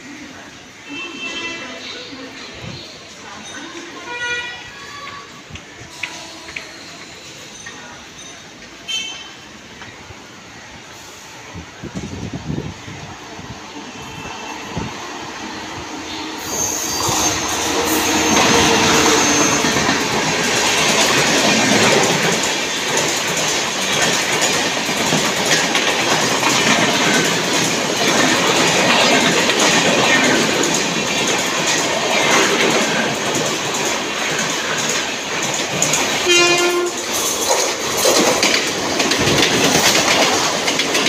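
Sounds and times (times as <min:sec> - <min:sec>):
train wheels rattling on rails: 0:01.2 - 0:41.0
train horn blast: 0:36.2 - 0:37.1.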